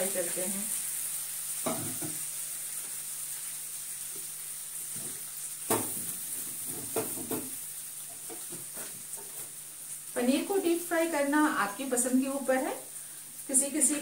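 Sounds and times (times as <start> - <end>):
food sizzling in a frying pan: 0.0 - 14.0
metal pans knocking on stove: 1.7 - 2.2, 5.7 - 7.6.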